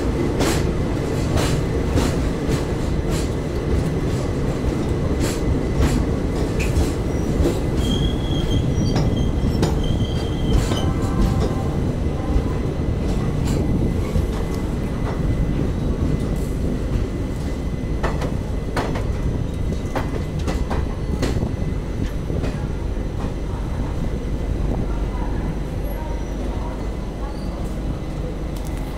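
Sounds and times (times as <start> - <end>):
train wheels rumbling on rail: 0.0 - 28.9
high wheel squeal: 7.8 - 10.9.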